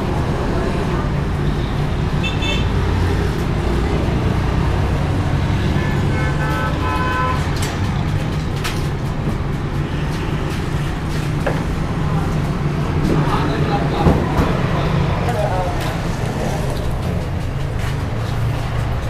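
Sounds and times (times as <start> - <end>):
street traffic: 0.0 - 19.0
vehicle horn honking: 2.2 - 2.7, 5.7 - 7.5.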